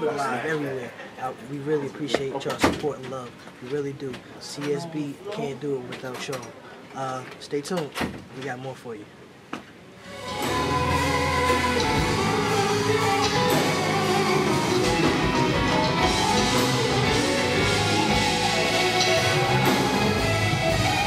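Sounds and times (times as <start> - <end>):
gospel band playing: 10.0 - 21.0
male vocal group singing: 10.1 - 20.4.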